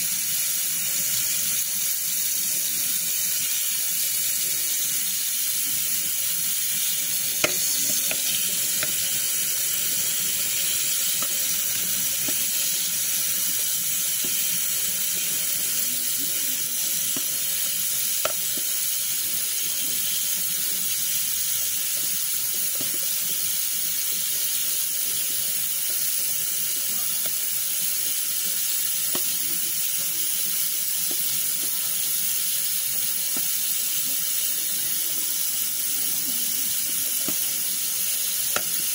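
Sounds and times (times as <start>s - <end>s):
tap water running into sink: 0.0s - 38.9s.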